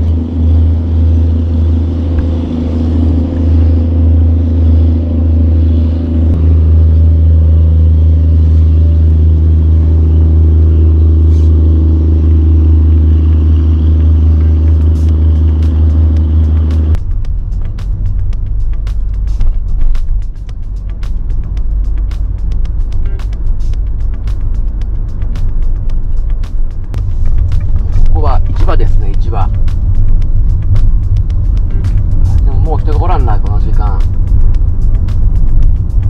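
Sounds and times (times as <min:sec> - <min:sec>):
engine droning: 0:00.0 - 0:36.0
music: 0:14.1 - 0:36.0.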